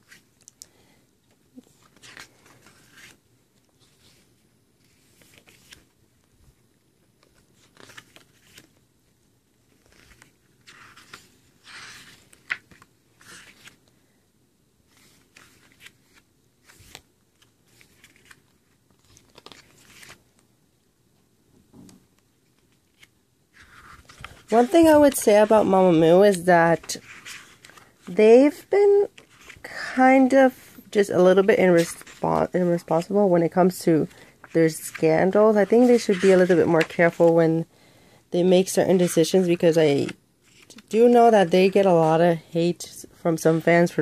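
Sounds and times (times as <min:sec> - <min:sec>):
pages turning: 0:01.6 - 0:06.0, 0:07.2 - 0:08.9, 0:09.7 - 0:14.0, 0:14.9 - 0:20.4, 0:22.4 - 0:29.8, 0:31.1 - 0:37.4, 0:38.9 - 0:42.4.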